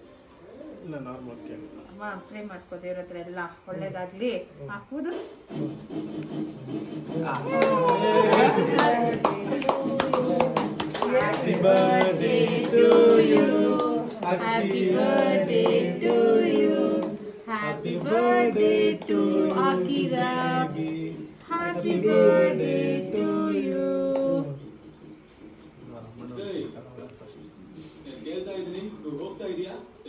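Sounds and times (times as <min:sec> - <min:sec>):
group singing: 0:07.5 - 0:25.1.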